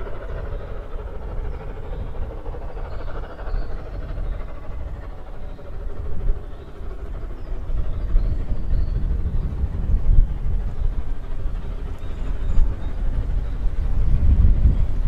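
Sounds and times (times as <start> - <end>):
distant steam train rumble: 0.0 - 15.0.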